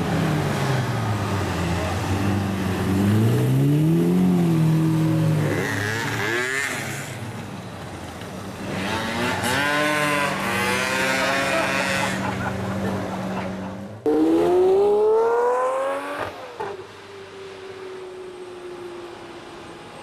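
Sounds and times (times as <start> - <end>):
car engine revving: 8.7 - 16.7.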